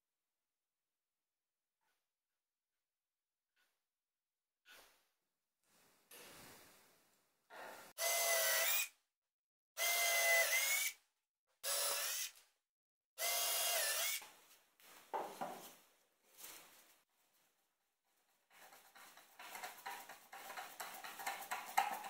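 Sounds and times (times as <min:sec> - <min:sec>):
cordless drill driving screws: 0:08.0 - 0:08.9, 0:09.8 - 0:11.0, 0:11.6 - 0:12.4, 0:13.2 - 0:14.2
handling scrapes: 0:18.2 - 0:22.0.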